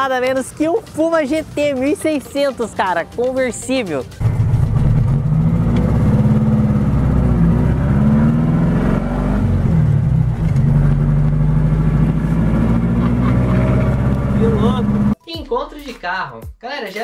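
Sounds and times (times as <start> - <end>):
car engine while driving: 4.2 - 15.2.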